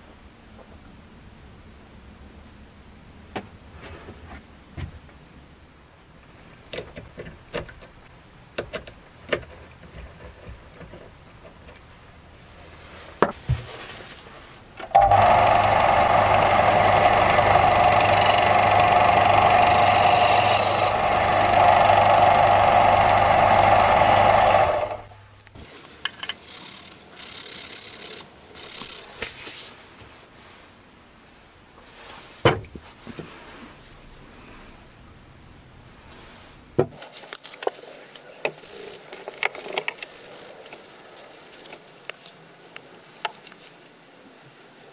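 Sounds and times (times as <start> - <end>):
disc sander grinding wood: 15.0 - 25.1.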